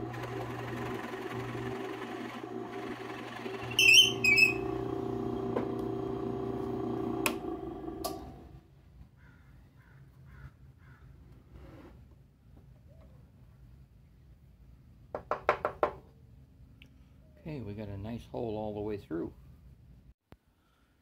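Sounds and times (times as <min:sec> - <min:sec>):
drill press boring wood: 0:00.0 - 0:08.6
high squeals: 0:03.6 - 0:05.0.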